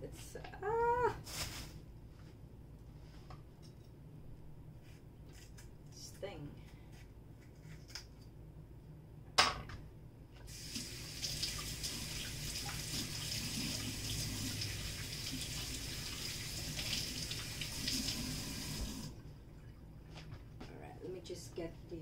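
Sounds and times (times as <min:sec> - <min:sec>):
faucet running: 0:10.5 - 0:19.2.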